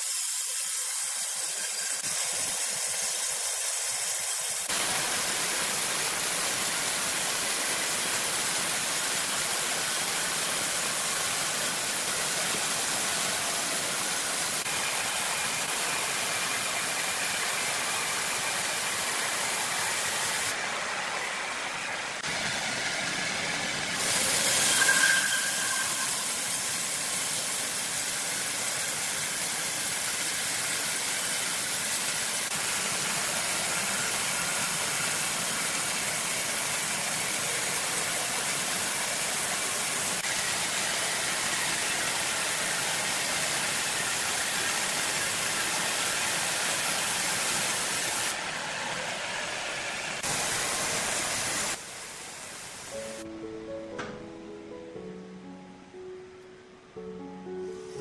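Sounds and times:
band saw cutting log: 0.0 - 37.6.

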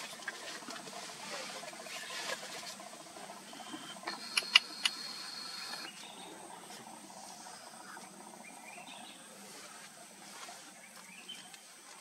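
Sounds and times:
low background hiss: 0.0 - 12.0
sharp clicks: 4.0 - 5.1.

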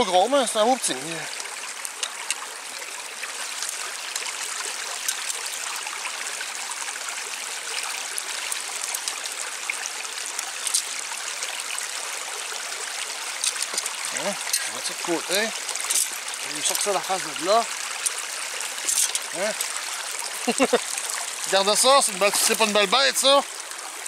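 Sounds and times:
water running and trickling: 0.0 - 24.0.

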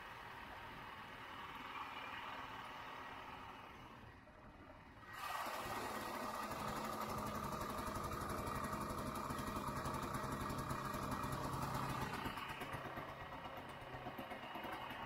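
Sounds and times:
snowmobile engine running: 5.4 - 13.8.

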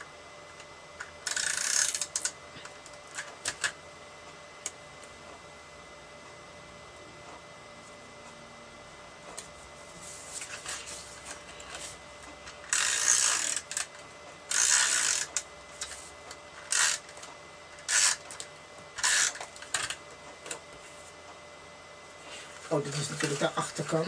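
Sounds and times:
tape runner ratcheting whirr: 0.0 - 3.8, 10.4 - 20.8.

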